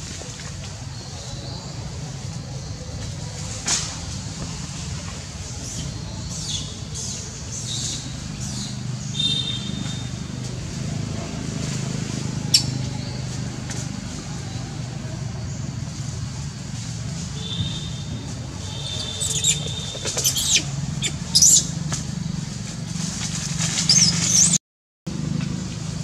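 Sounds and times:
monkey squeaking and squealing: 0:12.5 - 0:13.2, 0:18.6 - 0:21.9, 0:23.8 - 0:24.6.

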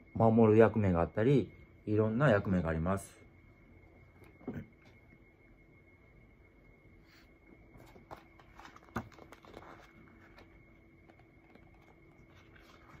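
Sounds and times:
faint room hum: 0:00.0 - 0:13.0
book pages rustling: 0:07.7 - 0:13.0.

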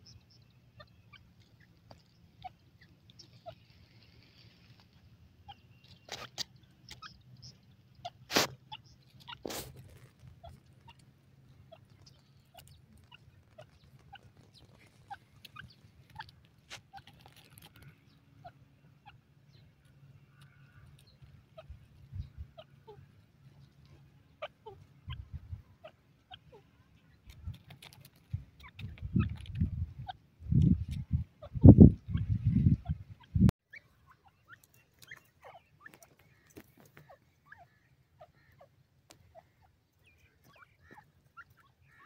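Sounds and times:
bird pecking in dry soil: 0:00.0 - 0:31.1, 0:33.7 - 0:42.0.

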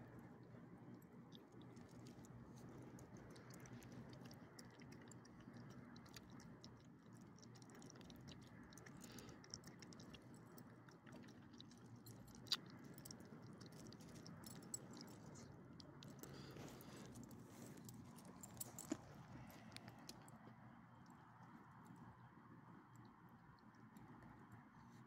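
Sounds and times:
dog chewing and licking: 0:01.0 - 0:20.3
wet clicks: 0:01.3 - 0:21.2.

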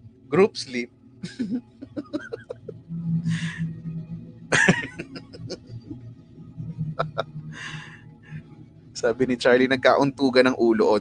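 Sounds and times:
low steady hum: 0:00.0 - 0:11.0
man chuckling: 0:01.2 - 0:03.6, 0:04.5 - 0:05.7, 0:07.0 - 0:07.9.

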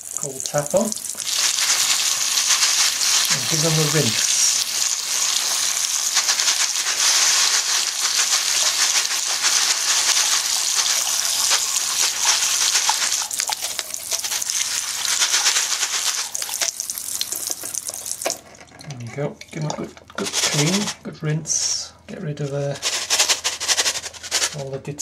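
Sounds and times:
tap water splashing: 0:16.4 - 0:18.4.

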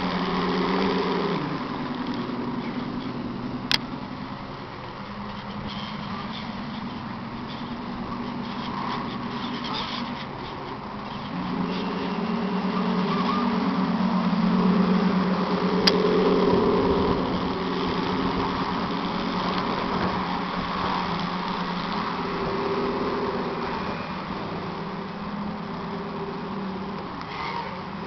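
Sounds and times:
simulated diesel engine rumble: 0:00.0 - 0:28.0.

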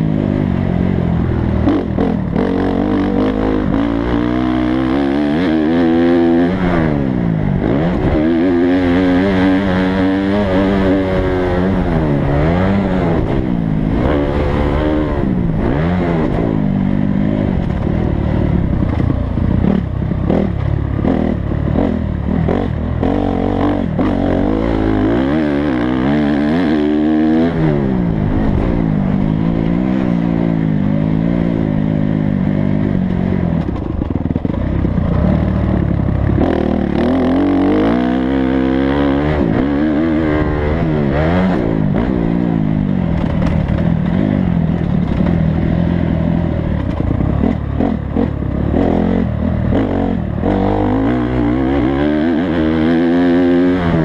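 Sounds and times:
dirt bike engine revving: 0:00.0 - 0:54.0
rough clatter: 0:43.0 - 0:49.0.

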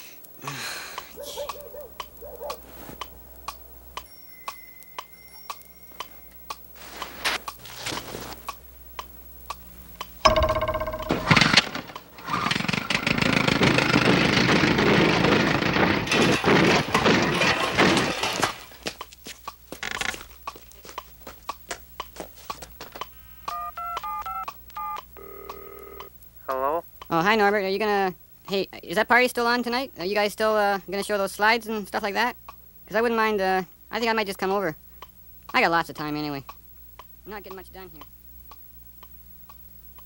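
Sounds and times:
telephone ringing tone: 0:10.3 - 0:11.8, 0:23.5 - 0:26.1
loud crash with clang: 0:10.3 - 0:12.2, 0:15.3 - 0:18.7
crashing and clattering: 0:10.3 - 0:19.0
telephone dialling tones: 0:23.5 - 0:26.1.

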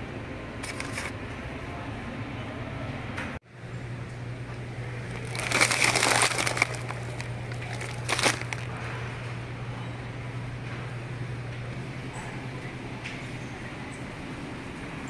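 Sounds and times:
steady low hum: 0:00.0 - 0:15.0
plastic packaging crinkling: 0:00.6 - 0:01.1, 0:05.0 - 0:08.7.

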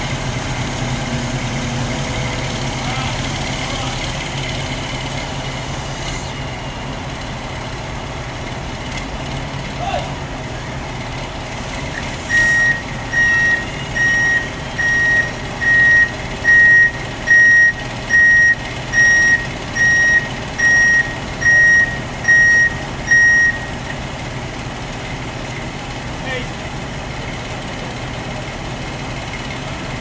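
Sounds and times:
diesel engine rumble: 0:00.0 - 0:30.0
back-up alarm beeping: 0:12.3 - 0:23.9.

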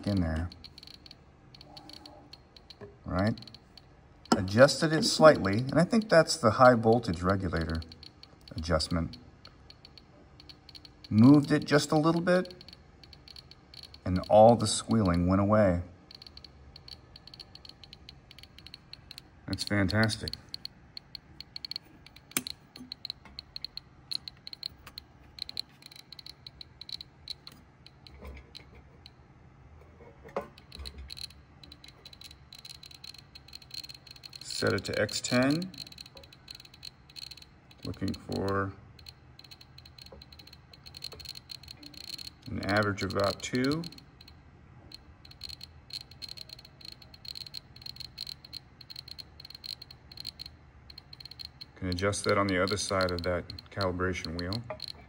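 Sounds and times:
geiger counter clicking: 0:00.0 - 0:29.2, 0:30.4 - 0:55.0.

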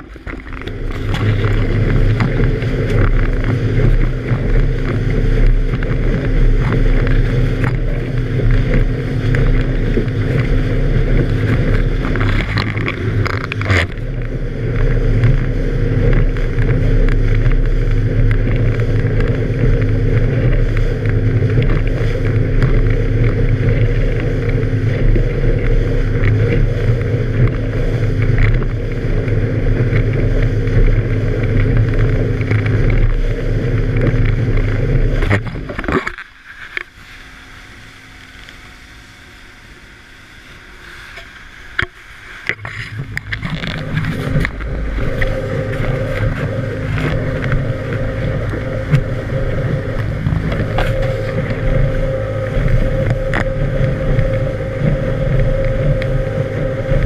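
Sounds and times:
wind on microphone: 0:00.0 - 0:38.4, 0:40.7 - 0:57.0
outboard motorboat engine hum: 0:00.0 - 0:57.0
spray hissing off hull: 0:36.9 - 0:57.0.

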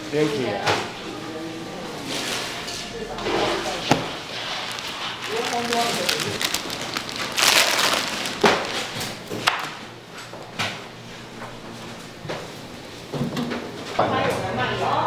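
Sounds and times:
rustling scrape: 0:02.0 - 0:09.2.

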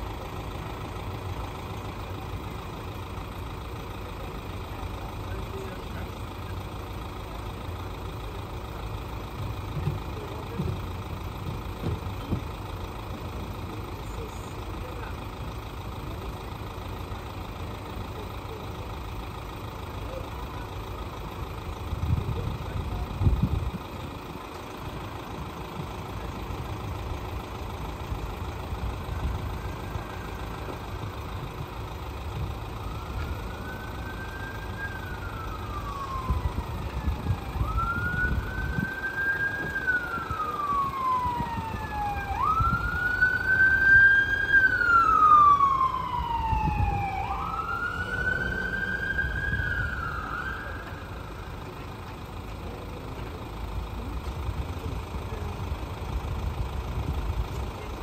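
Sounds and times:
emergency siren wailing: 0:24.4 - 0:52.4.

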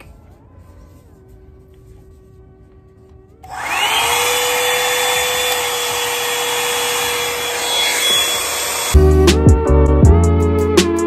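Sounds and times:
hair dryer motor whine: 0:03.4 - 0:09.1.

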